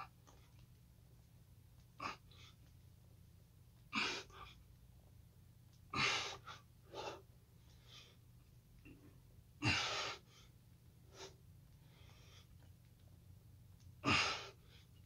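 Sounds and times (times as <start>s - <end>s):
man breathing hard: 9.6s - 10.5s.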